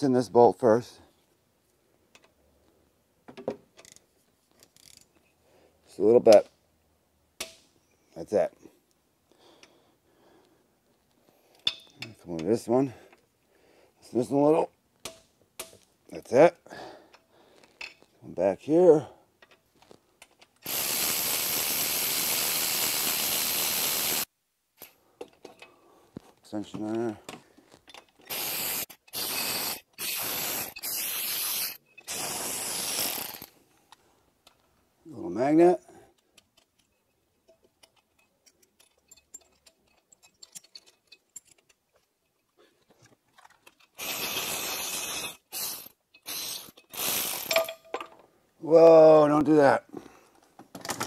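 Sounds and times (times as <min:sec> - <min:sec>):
ratchet wrench clicking: 0:04.7 - 0:05.1, 0:28.2 - 0:33.5, 0:44.0 - 0:47.8
hand tools clinking: 0:11.5 - 0:12.2, 0:24.8 - 0:25.8, 0:26.9 - 0:30.0, 0:36.2 - 0:48.2
loud steady hiss: 0:20.6 - 0:25.0, 0:28.2 - 0:33.6, 0:44.0 - 0:47.7.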